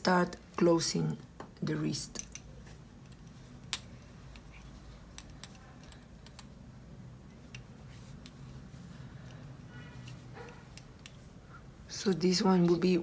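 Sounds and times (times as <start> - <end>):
knitting needles clicking: 2.2 - 6.6.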